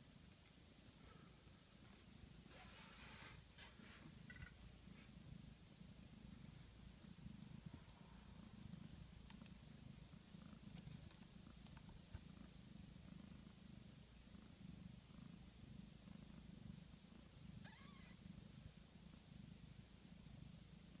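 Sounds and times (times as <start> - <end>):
cat purring: 0.0 - 21.0.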